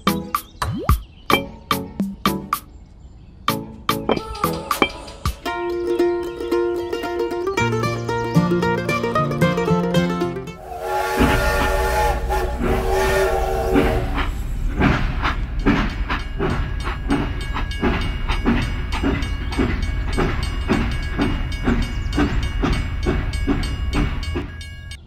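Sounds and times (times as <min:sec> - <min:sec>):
toy train whistle: 0:10.6 - 0:14.4.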